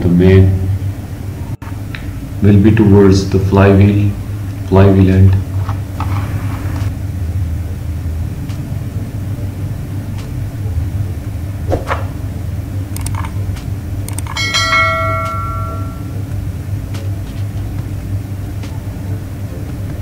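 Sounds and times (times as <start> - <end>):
low background hum: 0.0 - 20.0
steel part ringing like a bell: 14.3 - 16.2.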